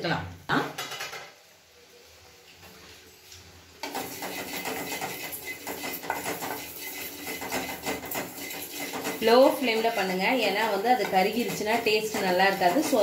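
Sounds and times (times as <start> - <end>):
wooden spatula scraping seeds in pan: 3.8 - 13.0.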